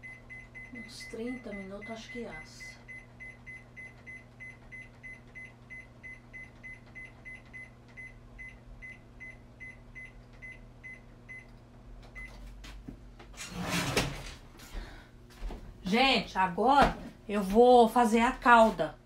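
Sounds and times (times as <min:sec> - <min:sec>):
steady low hum: 0:00.0 - 0:19.0
oven control panel beeping: 0:02.8 - 0:12.4.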